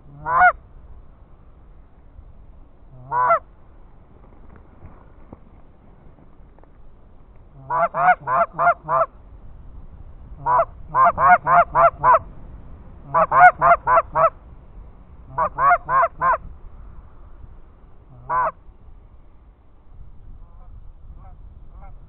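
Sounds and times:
goose call honks: 0.0s - 0.6s, 2.9s - 3.5s, 7.5s - 9.1s, 10.4s - 12.3s, 13.0s - 14.4s, 15.3s - 16.4s, 18.1s - 18.6s.

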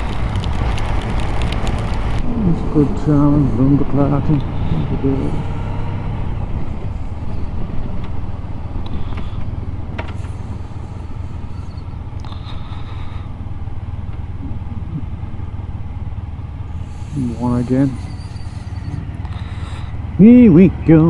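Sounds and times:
motorcycle engine changing gears: 0.0s - 21.0s
road noise: 0.0s - 21.0s.

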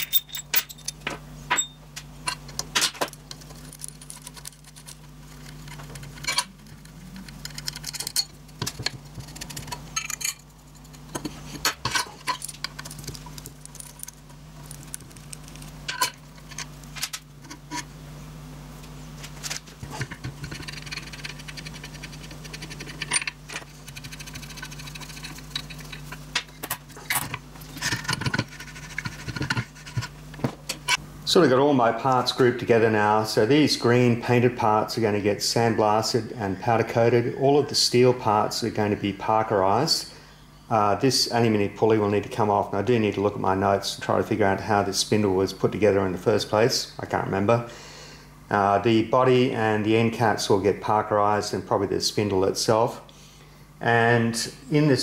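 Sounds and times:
metal parts clinking: 0.0s - 5.0s, 5.6s - 6.5s, 7.4s - 8.4s, 9.3s - 15.0s, 22.5s - 23.6s
steady low hum: 0.0s - 55.0s.

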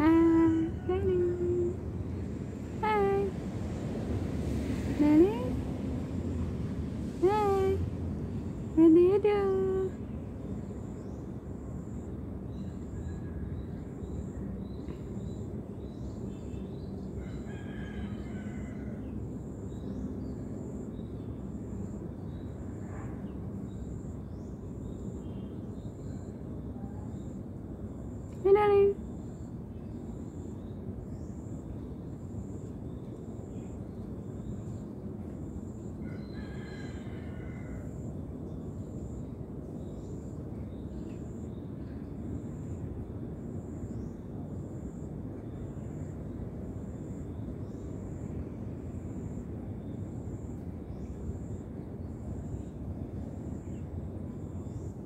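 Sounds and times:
steady low rumble: 0.0s - 17.2s.

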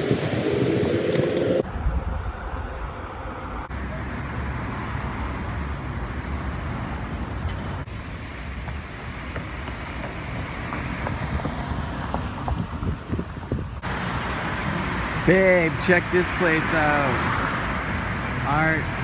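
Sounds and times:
street traffic: 0.0s - 19.0s
wind buffeting microphone: 8.6s - 14.0s.

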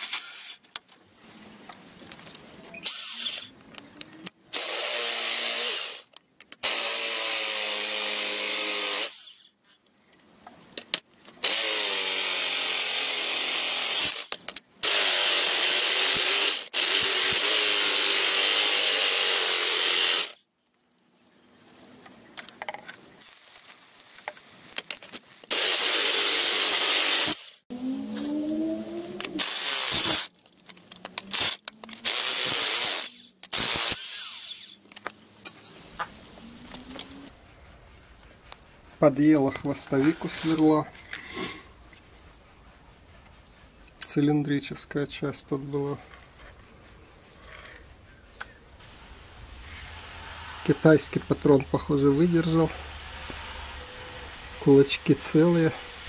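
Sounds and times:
rotary hammer drilling steel: 0.0s - 0.7s, 2.8s - 3.5s, 4.5s - 9.6s, 11.4s - 20.4s, 25.4s - 27.6s, 29.2s - 30.3s, 31.3s - 35.0s.

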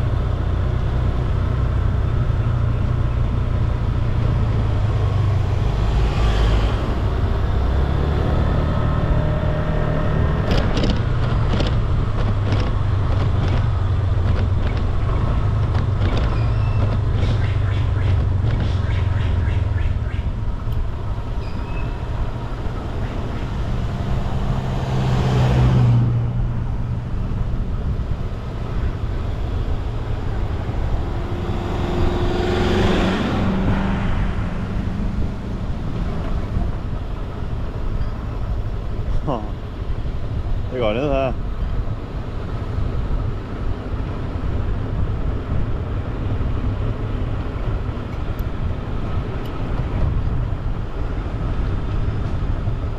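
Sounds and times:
road and wind noise: 0.0s - 52.9s
small ticks and knocks: 10.5s - 14.9s.

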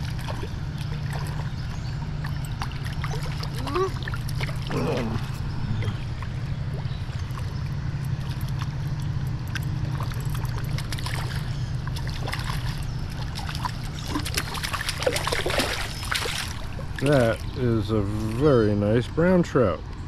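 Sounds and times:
fish thrashing at the surface: 0.0s - 17.6s
river water trickling and splashing: 0.0s - 20.0s.

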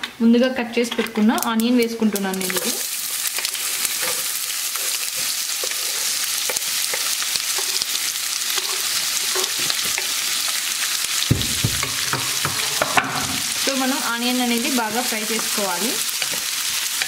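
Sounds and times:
hot oil sizzling in a pan: 2.3s - 17.0s
low thump: 11.3s - 12.0s.

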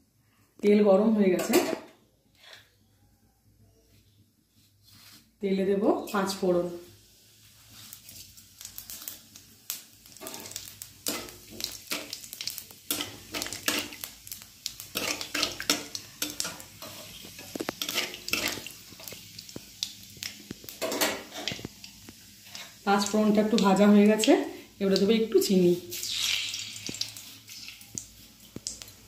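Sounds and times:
seeds crackling in hot oil: 6.0s - 29.0s
metal spatula scraping pan: 10.2s - 12.2s, 14.9s - 19.2s.

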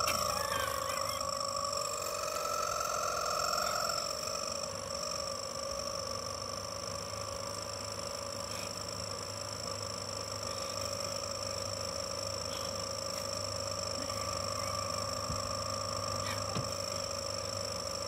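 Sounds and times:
rubber chicken squealing: 0.1s - 1.3s.

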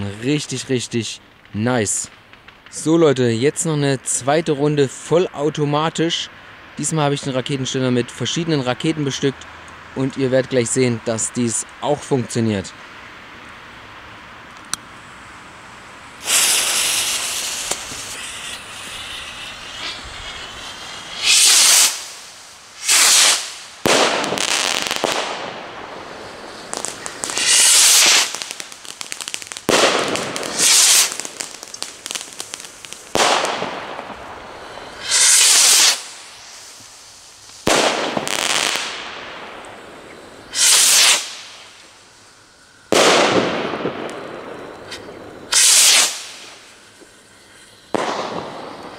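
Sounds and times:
firework pops and crackles: 1.3s - 3.0s, 16.2s - 42.2s, 42.8s - 48.9s
firework rockets launching whoosh: 16.0s - 47.0s, 47.8s - 48.9s.

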